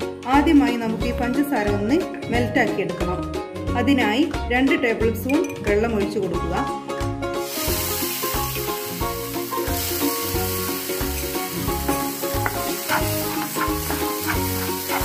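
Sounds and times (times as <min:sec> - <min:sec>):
sugar sizzling in a pan: 0:07.4 - 0:15.0
spatula scraping a pan: 0:12.8 - 0:15.0.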